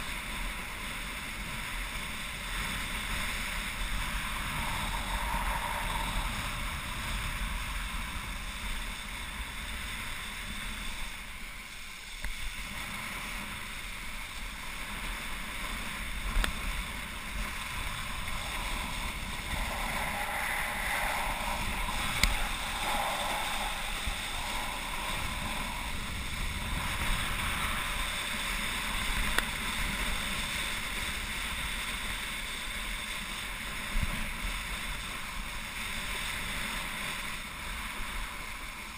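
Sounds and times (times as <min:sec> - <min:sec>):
wind rushing over microphone: 0:00.0 - 0:38.9
water spray hissing: 0:17.3 - 0:28.2.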